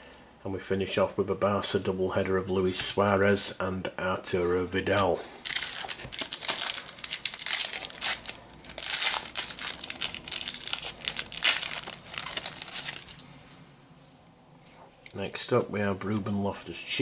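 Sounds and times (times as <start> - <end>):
plastic wrapper crinkling: 5.4 - 13.3.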